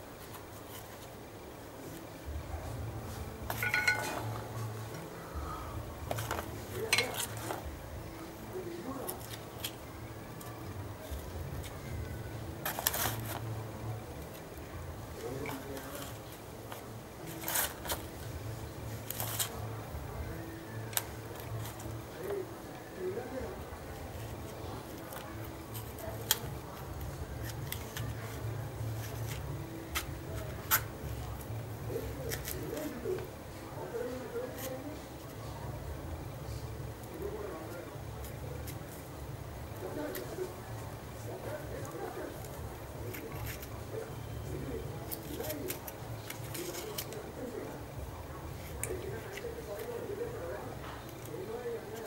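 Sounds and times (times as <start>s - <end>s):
low steady hum: 0.0s - 52.0s
fruit husk clicking and snapping: 24.4s - 31.5s, 32.1s - 33.3s, 45.0s - 47.4s, 48.6s - 50.1s.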